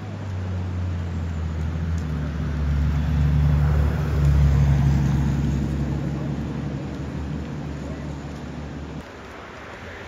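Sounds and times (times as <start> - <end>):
vehicle engine passing by: 0.2 - 7.7.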